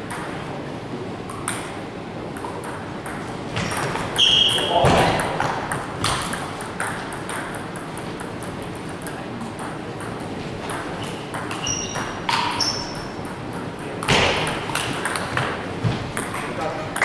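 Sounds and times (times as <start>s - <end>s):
short high squeaks: 4.2s - 4.7s, 11.0s - 13.1s
table tennis ball clicking: 4.6s - 15.6s.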